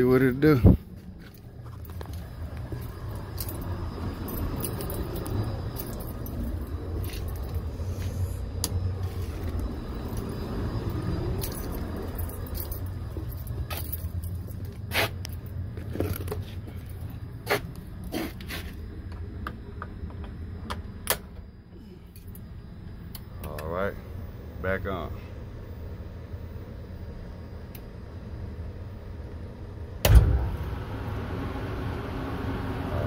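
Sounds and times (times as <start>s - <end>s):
steady low hum: 0.0s - 33.0s
walking noise: 0.7s - 3.7s, 4.3s - 8.2s, 11.3s - 20.3s.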